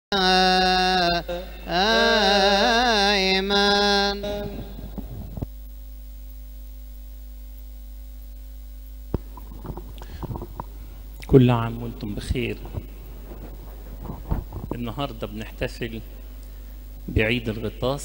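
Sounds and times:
person chanting a hymn: 0.1s - 5.4s
electrical hum: 0.1s - 18.0s.

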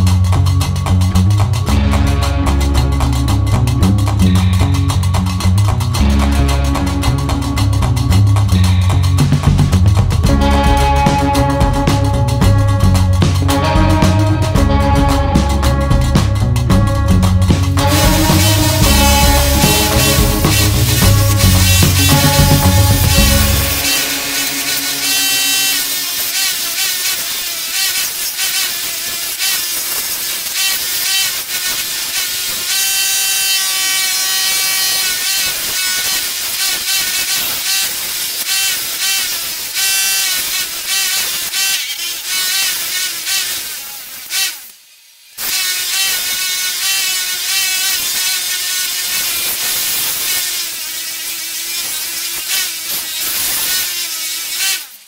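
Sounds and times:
bench polisher whining: 17.8s - 29.1s.

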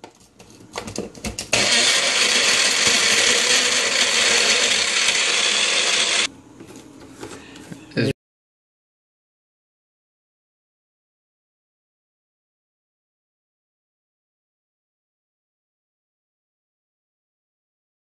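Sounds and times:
blender running: 1.5s - 6.3s.

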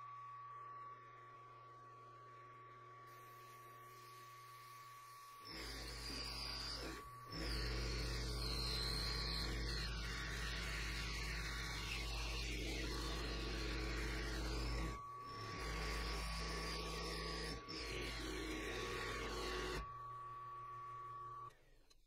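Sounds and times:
mill motor hum: 0.0s - 21.8s
end mill cutting metal: 5.0s - 19.9s.

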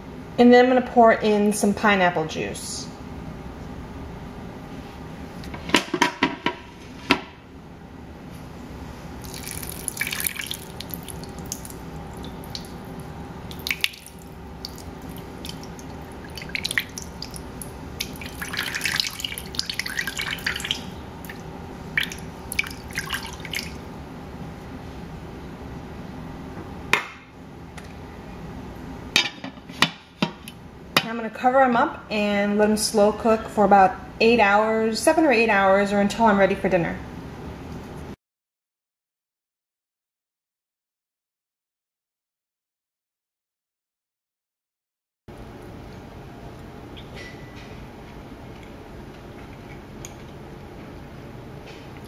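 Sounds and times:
juice pouring and splashing: 9.2s - 23.8s.

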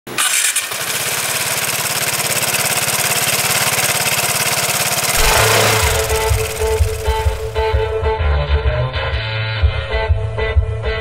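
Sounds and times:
scooter engine idling: 0.2s - 7.7s
music with bass and guitar: 5.2s - 11.0s.

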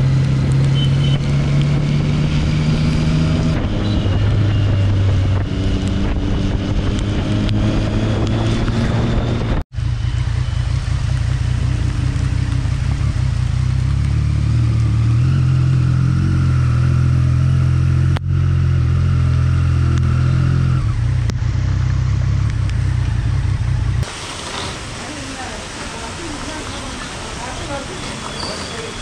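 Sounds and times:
motorcycle engine at low revs: 0.0s - 24.8s
rain and wet tyres hissing: 9.8s - 17.4s, 19.3s - 29.0s.

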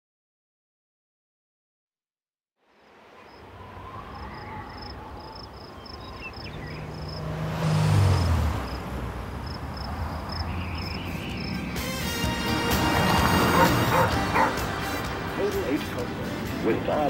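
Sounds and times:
crickets chirping: 2.8s - 11.9s
car driving past: 3.2s - 15.2s.

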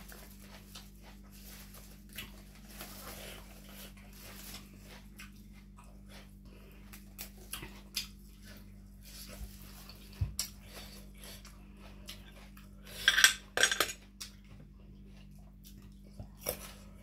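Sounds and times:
herb sprigs rustling: 0.0s - 5.8s
crunchy chewing: 0.0s - 13.0s, 14.1s - 17.0s
steady low hum: 0.0s - 17.0s.

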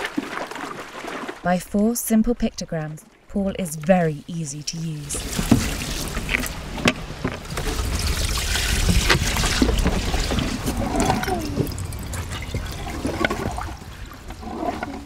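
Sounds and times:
water splashing into tank: 7.4s - 14.2s.

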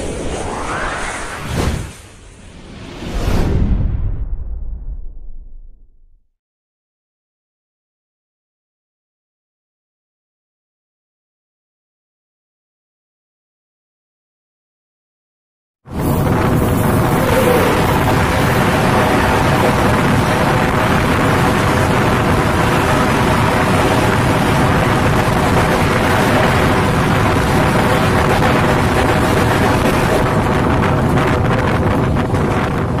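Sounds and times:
wind rushing: 0.0s - 5.9s, 15.9s - 33.0s
train wheels on rail: 16.0s - 33.0s.

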